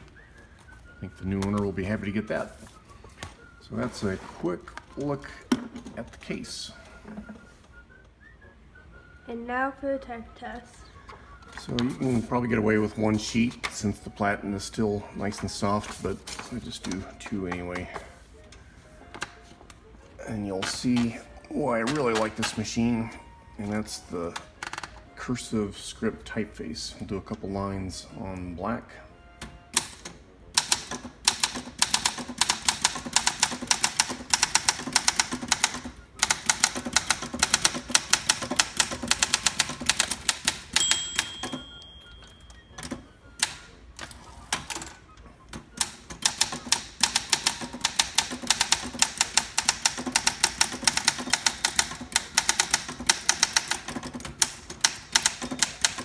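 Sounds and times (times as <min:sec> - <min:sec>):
typewriter carriage return: 0:29.4 - 0:56.0
typewriter typing: 0:29.8 - 0:41.7, 0:45.7 - 0:56.0
typewriter margin bell: 0:40.7 - 0:43.0.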